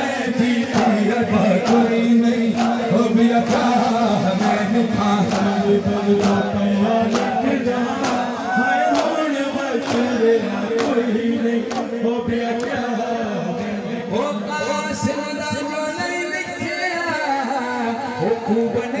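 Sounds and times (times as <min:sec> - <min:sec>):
group chorus: 0:00.0 - 0:14.5
steady beat: 0:00.0 - 0:17.2
men chanting a lament: 0:00.0 - 0:19.0.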